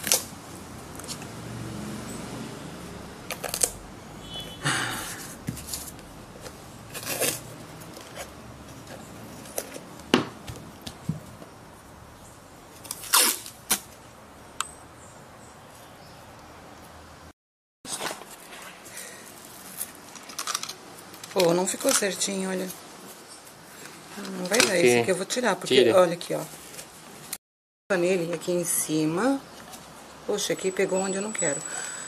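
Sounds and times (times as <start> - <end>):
masking tape ripping: 0.0 - 0.3, 3.3 - 3.8, 6.9 - 8.3, 12.8 - 14.0.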